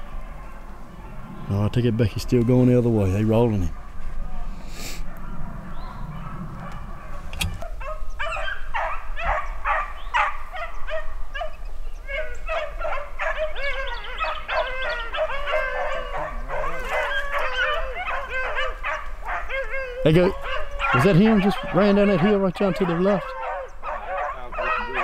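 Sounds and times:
hounds baying: 5.0s - 25.0s.

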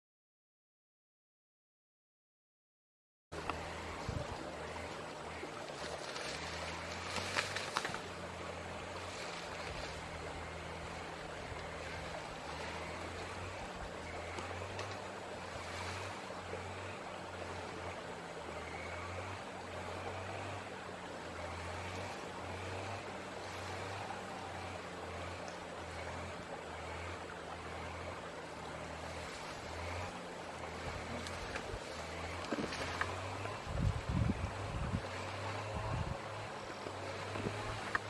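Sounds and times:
low hum: 3.3s - 38.0s
steady rushing hiss: 3.4s - 38.0s
sharp crackles: 5.7s - 8.1s.

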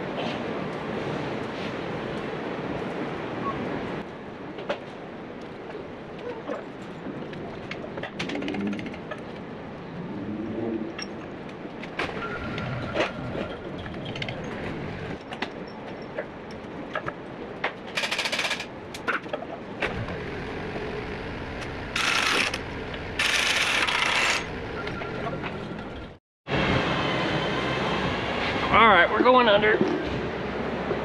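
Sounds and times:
pneumatic impact wrench: 22.0s - 22.6s, 23.2s - 24.5s.

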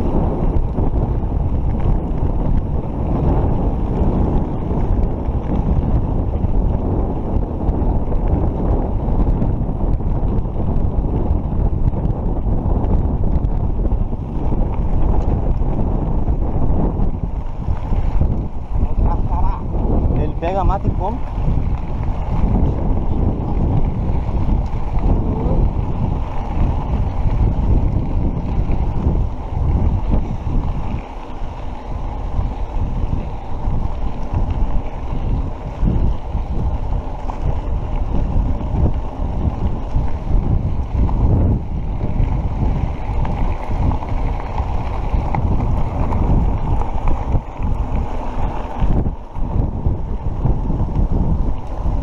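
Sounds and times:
bike jolts: 0.0s - 52.0s
knobby tyre rumble on dirt: 0.0s - 52.0s
wind buffeting microphone: 0.0s - 52.0s.

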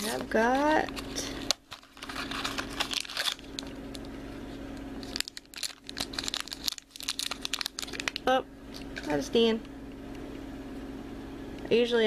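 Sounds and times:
packaging crinkling: 0.8s - 4.1s, 5.0s - 9.1s.

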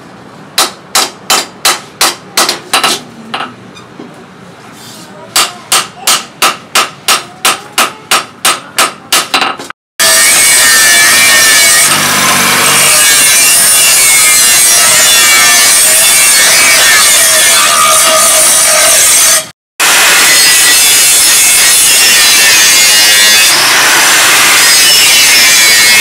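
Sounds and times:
hammer striking steel on anvil: 0.6s - 3.5s, 5.3s - 19.2s
angle grinder grinding: 10.0s - 26.0s.

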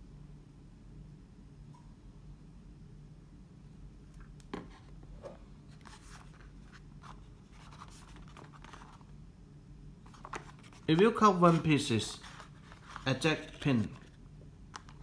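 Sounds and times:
cardboard scraping and rubbing: 4.6s - 9.0s, 10.1s - 14.2s.

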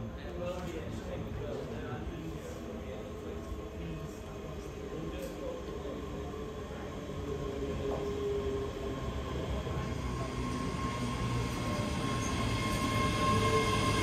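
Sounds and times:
train electric whine: 3.0s - 14.0s.

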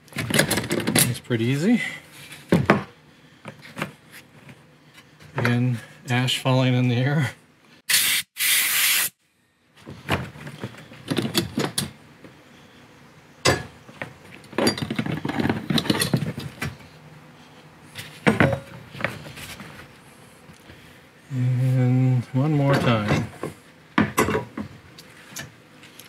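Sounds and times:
short hissing bursts: 7.9s - 9.2s.

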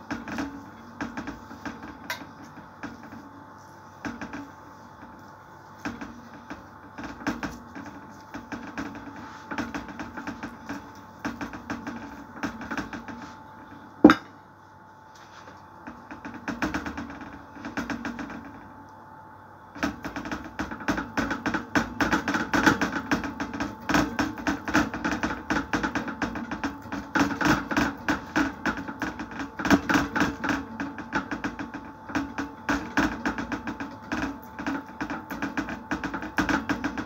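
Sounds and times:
fingertips tapping dough on tray: 19.8s - 37.0s.

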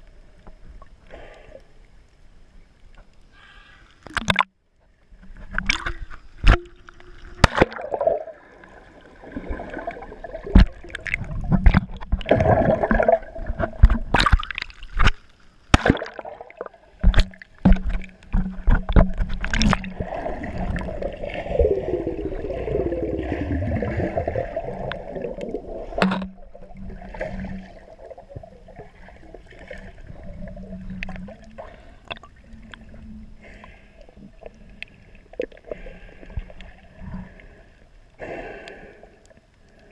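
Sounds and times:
muffled underwater sloshing: 0.0s - 39.9s
sharp knocks and splashes: 4.1s - 4.6s, 5.4s - 8.4s, 9.3s - 21.0s, 24.8s - 27.8s.

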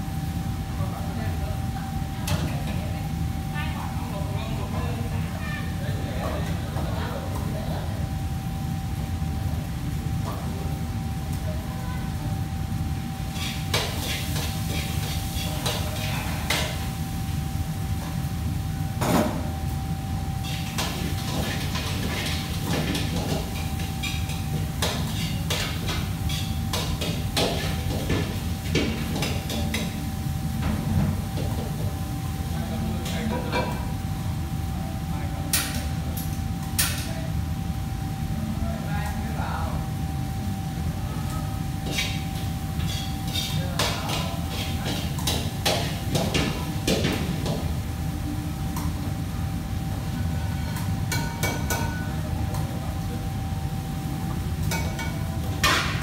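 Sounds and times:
kitchen equipment hum: 0.0s - 56.0s
utensils and dishes clinking: 41.8s - 47.7s, 50.2s - 52.7s, 54.6s - 56.0s.

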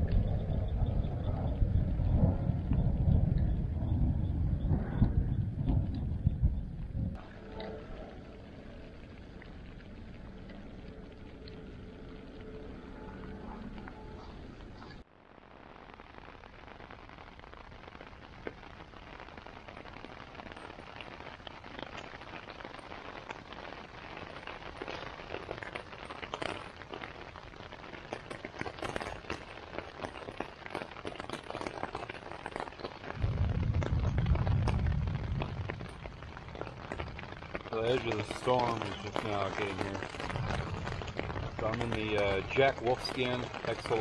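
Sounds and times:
deep thunder rumble: 0.0s - 9.0s, 33.1s - 44.0s
rain pattering on tent fabric: 0.0s - 44.0s.

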